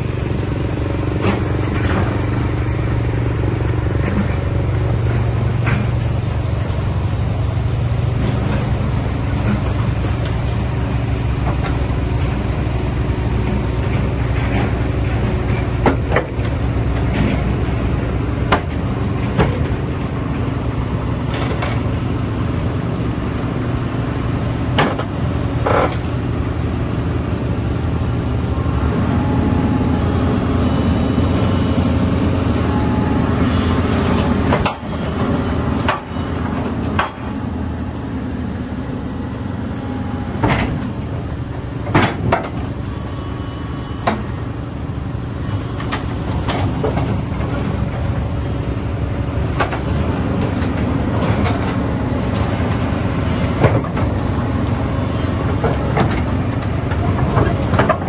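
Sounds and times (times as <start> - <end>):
excavator diesel engine drone: 0.0 - 58.0
steel tracks clanking: 0.0 - 58.0.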